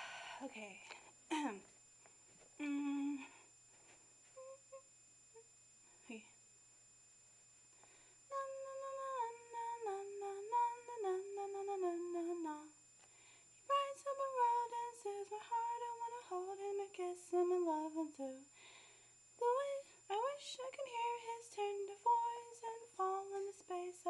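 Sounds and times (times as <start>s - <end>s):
girl singing unaccompanied: 8.3s - 12.8s, 13.7s - 18.5s, 19.4s - 24.0s.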